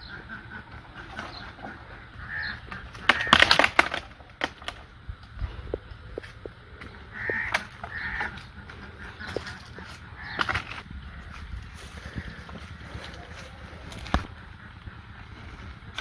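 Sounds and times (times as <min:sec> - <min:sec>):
crows cawing: 0:01.3 - 0:03.8, 0:06.8 - 0:16.0.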